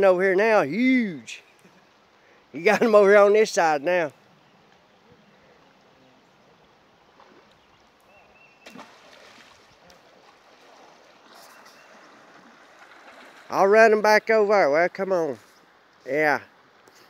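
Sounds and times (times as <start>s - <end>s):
water splashing while wading: 8.6s - 13.6s.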